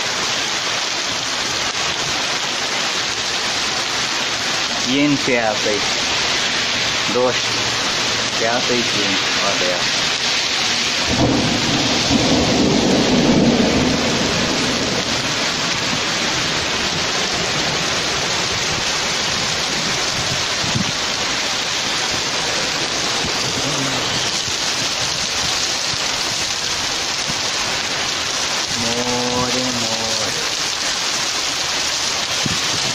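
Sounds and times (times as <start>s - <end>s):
heavy rain on street: 0.0s - 32.9s
thunder rumble: 9.9s - 27.8s.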